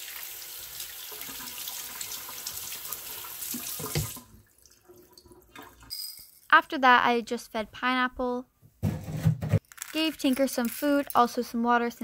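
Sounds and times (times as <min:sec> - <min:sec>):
water splashing from faucet: 0:00.0 - 0:05.9.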